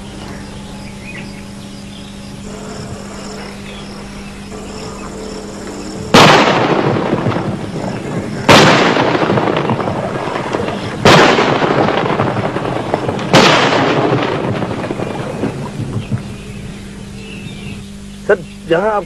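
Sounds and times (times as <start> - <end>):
artillery shells exploding: 6.1 - 16.3.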